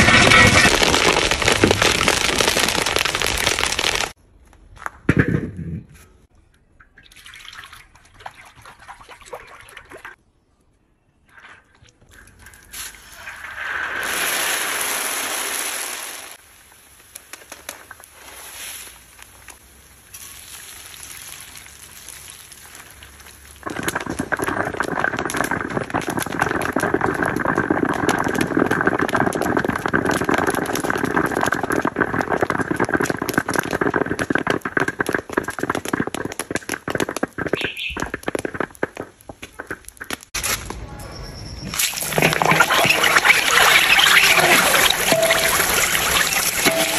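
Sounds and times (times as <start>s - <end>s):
oil sizzling and crackling: 0.0s - 4.2s, 12.1s - 40.4s, 41.8s - 46.9s.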